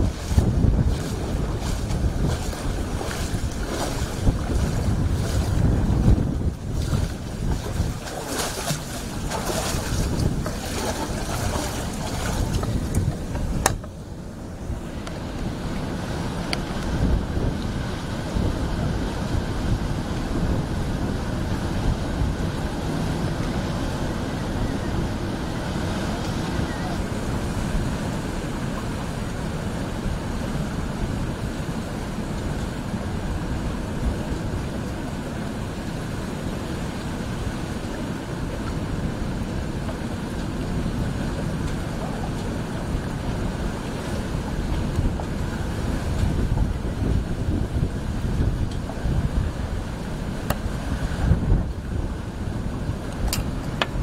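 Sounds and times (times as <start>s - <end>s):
wind on microphone: 0.0s - 54.0s.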